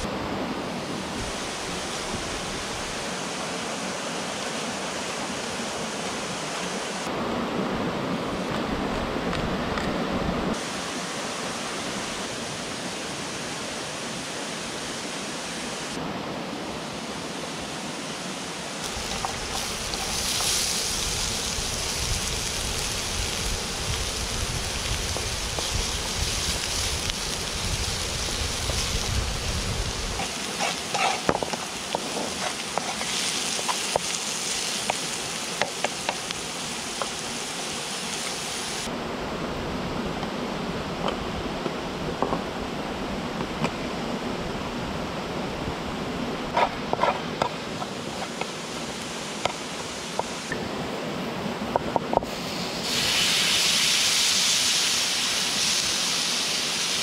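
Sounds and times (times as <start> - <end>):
river rushing: 0.0 - 31.0, 31.6 - 57.0
chicken frying in hot oil: 18.8 - 36.3, 52.8 - 57.0.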